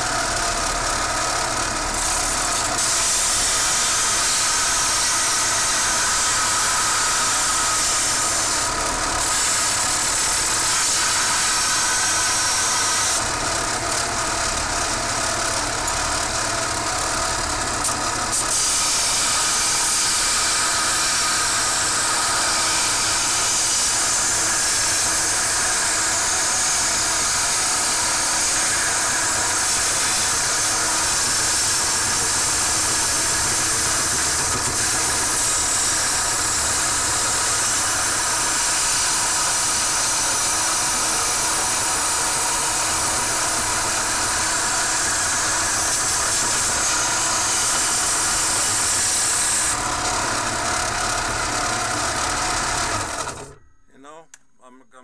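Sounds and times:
belt grinder grinding metal: 0:00.0 - 0:53.6
belt grinder motor tone: 0:00.0 - 0:53.7.

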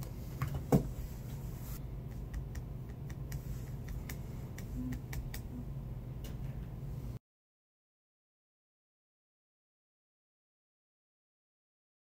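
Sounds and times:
steady low hum: 0:00.0 - 0:07.2.

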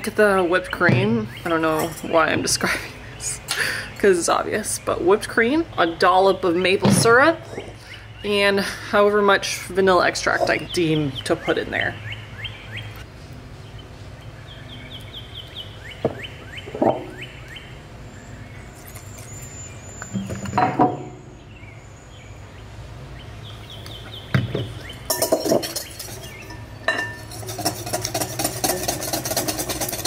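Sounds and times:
bird chirping: 0:10.4 - 0:13.0, 0:13.6 - 0:27.3
clinks against glass: 0:25.1 - 0:27.3
whisk beating cream: 0:27.3 - 0:30.0.

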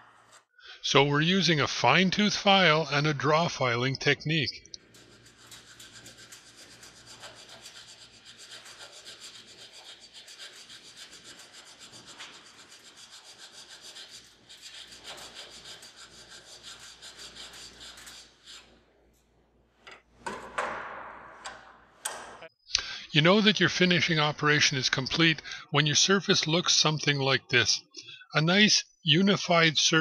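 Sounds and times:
hand file rasping on steel: 0:04.8 - 0:18.8
knocks: 0:20.2 - 0:22.5.

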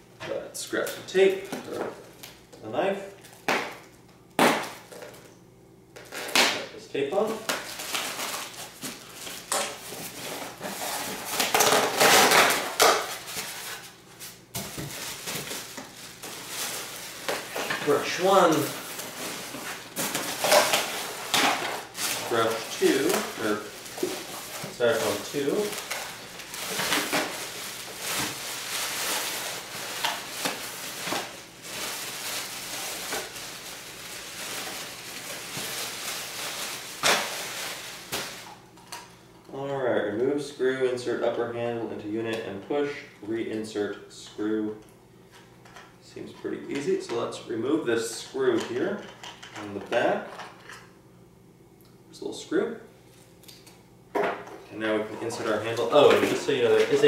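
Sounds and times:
styrofoam rustling and squeaking: 0:07.2 - 0:38.5, 0:55.3 - 0:57.0
plastic wrapping crinkling: 0:07.2 - 0:38.9, 0:55.2 - 0:57.0.

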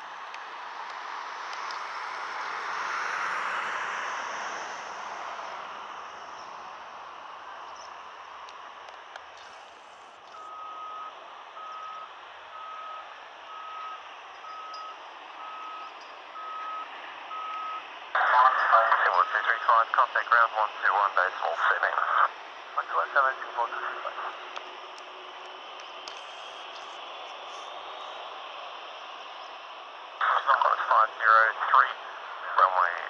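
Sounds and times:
vehicle reversing alarm beeping: 0:02.8 - 0:03.8, 0:09.4 - 0:24.8, 0:25.9 - 0:32.2.

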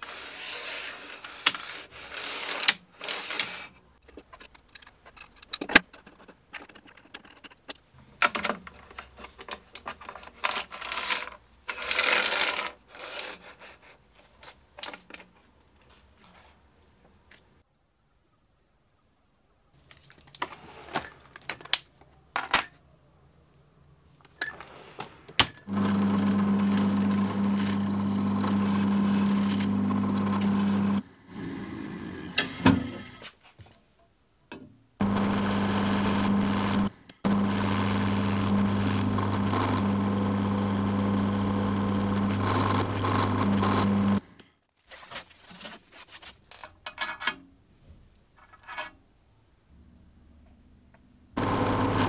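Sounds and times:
drill press humming: 0:35.0 - 0:44.2, 0:51.4 - 0:52.0.

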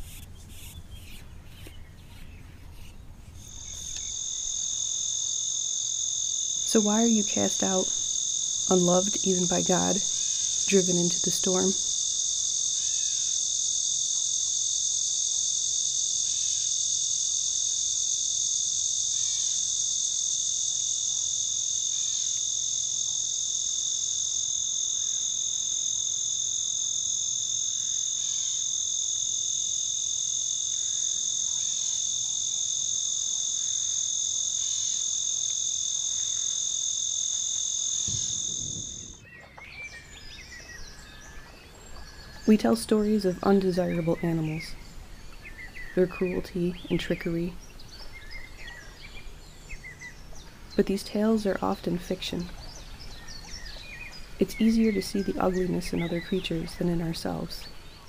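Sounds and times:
insects trilling: 0:00.0 - 0:58.0
quiet outdoor sounds: 0:00.0 - 0:58.0
low thump: 0:38.1 - 0:39.2.

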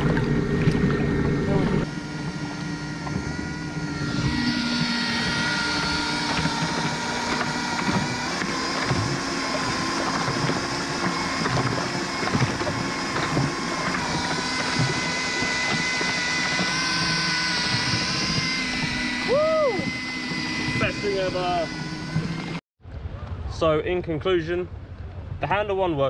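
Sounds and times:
water rushing and splashing: 0:00.0 - 0:22.6
drill motor whining: 0:00.1 - 0:22.6.

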